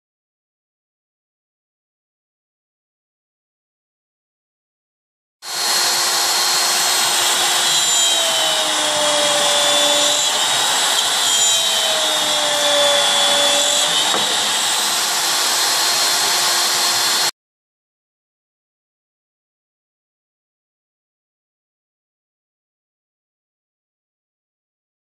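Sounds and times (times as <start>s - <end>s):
cnc router spindle whining: 5.5s - 17.3s.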